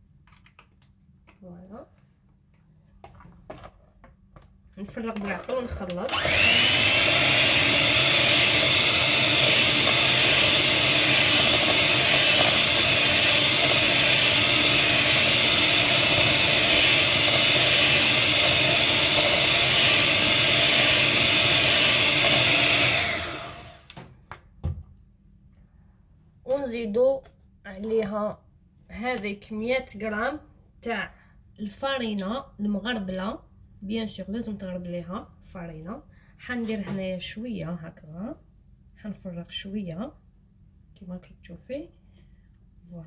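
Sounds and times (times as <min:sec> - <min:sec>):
electric hand mixer whisking: 0:05.8 - 0:23.9.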